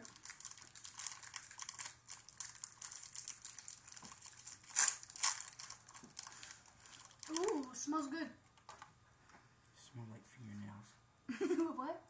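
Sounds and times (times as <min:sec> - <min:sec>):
plastic wrappers crinkling: 0:00.0 - 0:07.9.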